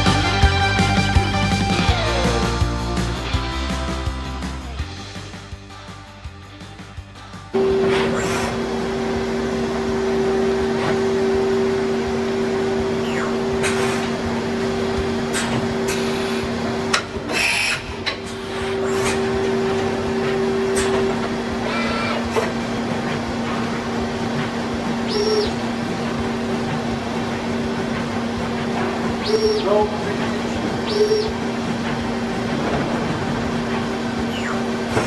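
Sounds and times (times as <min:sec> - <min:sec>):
machine spindle humming: 0:07.5 - 0:35.0
short rushes of machining noise: 0:07.6 - 0:09.3, 0:12.6 - 0:35.0.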